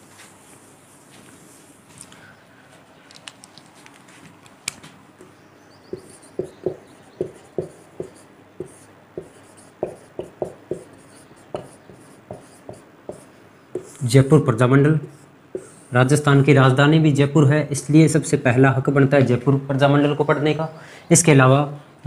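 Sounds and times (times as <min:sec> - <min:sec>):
marker pen writing on whiteboard: 0:05.2 - 0:14.3, 0:14.9 - 0:16.2.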